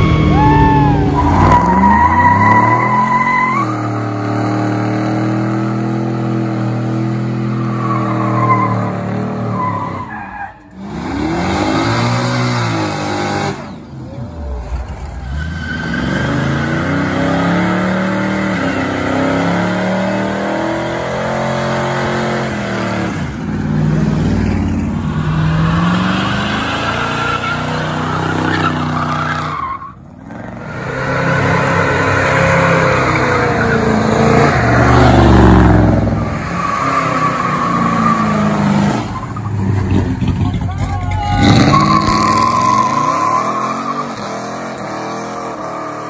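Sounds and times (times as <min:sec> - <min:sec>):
car engines revving hard: 0:00.0 - 0:46.0
tyres squealing: 0:36.5 - 0:44.4.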